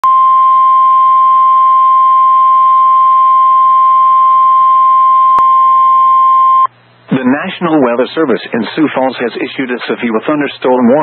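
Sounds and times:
steady loud alarm tone: 0:00.0 - 0:06.7.

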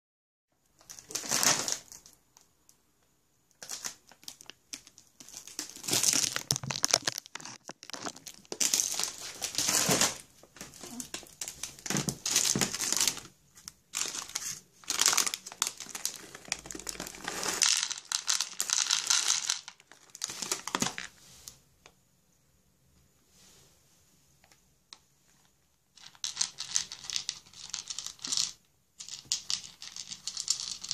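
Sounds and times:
plastic bag crinkling: 0:03.6 - 0:21.1.

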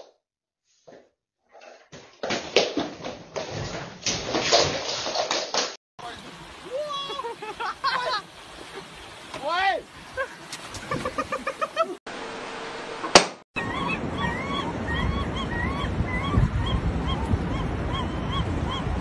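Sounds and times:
gulls calling: 0:06.0 - 0:12.0, 0:13.6 - 0:19.0
low wind rumble on microphone: 0:13.6 - 0:19.0.

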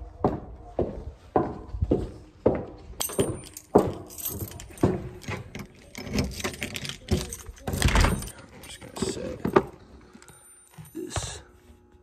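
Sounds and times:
footsteps walking: 0:00.0 - 0:05.5
light jingling: 0:03.0 - 0:11.4.

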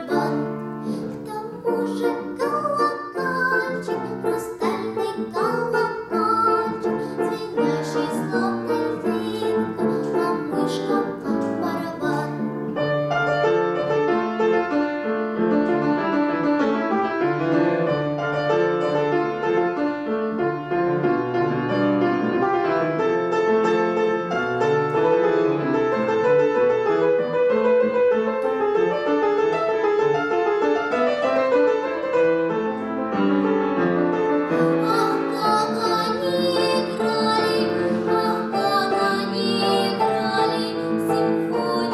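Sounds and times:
girl singing: 0:00.0 - 0:12.6, 0:34.6 - 0:41.9
upright piano: 0:00.0 - 0:41.9.

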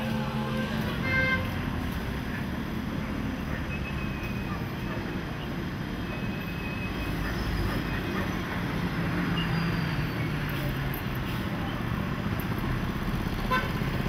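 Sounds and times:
moving vehicle rumble and hiss: 0:00.0 - 0:14.0.

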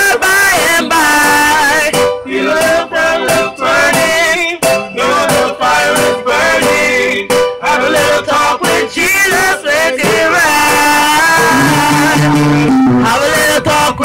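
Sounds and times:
electronic keyboard: 0:00.0 - 0:14.0
men singing into microphone: 0:00.0 - 0:14.0.

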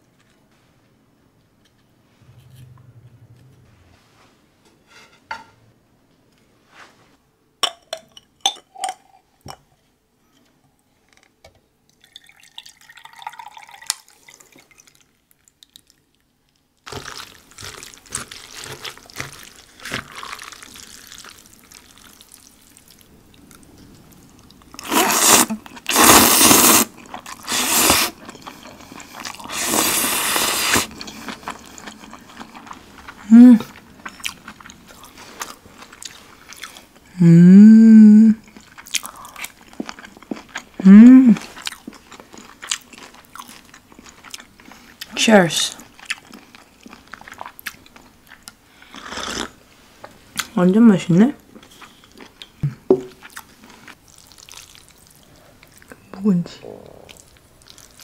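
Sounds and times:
drink pouring into glass: 0:12.0 - 0:14.9.

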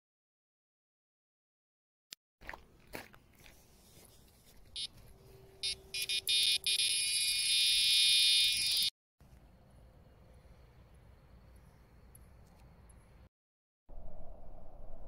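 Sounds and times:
continuous shrill alarm tone: 0:04.8 - 0:08.9
bite alarm beeps: 0:05.6 - 0:08.9.

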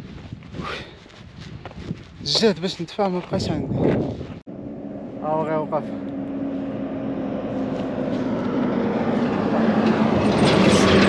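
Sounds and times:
road noise: 0:00.0 - 0:11.0
truck engine slowing to stop: 0:04.5 - 0:11.0.

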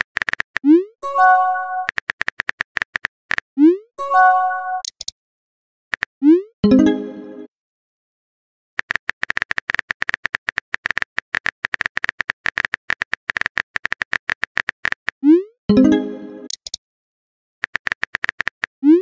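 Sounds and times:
rapid keyboard tapping clicks: 0:00.0 - 0:00.7, 0:01.7 - 0:03.4, 0:08.8 - 0:15.2, 0:17.6 - 0:18.7.

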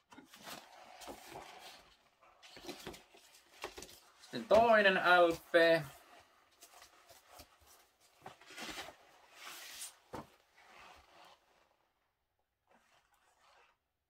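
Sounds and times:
vinyl record sliding from sleeve: 0:08.3 - 0:11.5.

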